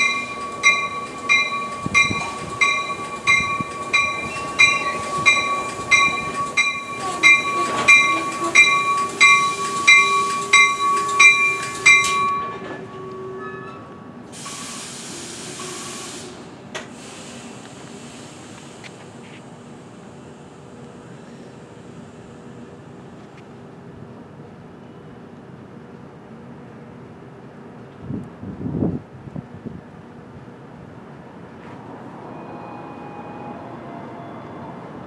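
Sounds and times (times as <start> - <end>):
train bell ringing: 0.0 - 14.0
train rolling in: 0.0 - 35.0
brake air hiss: 14.3 - 20.0.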